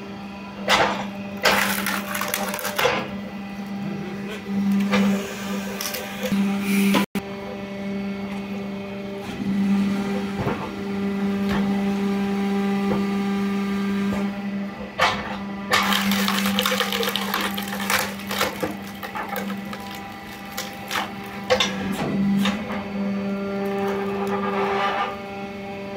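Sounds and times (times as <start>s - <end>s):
log splitter motor humming: 0.0s - 9.0s, 15.5s - 25.9s
wood cracking and splintering: 1.4s - 3.0s, 15.7s - 21.7s.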